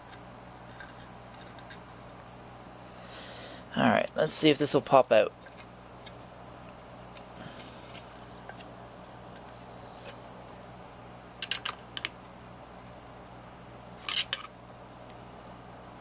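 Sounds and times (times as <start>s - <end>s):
low steady hum: 0.0s - 16.0s
circuit board clicking and rattling: 11.4s - 12.2s.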